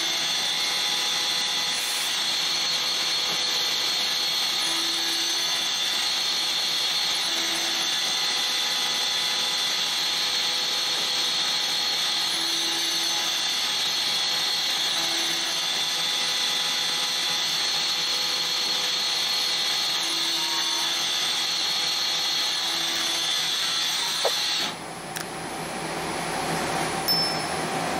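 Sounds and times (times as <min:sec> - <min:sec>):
lathe spindle whirring and cutting: 0:00.0 - 0:25.2.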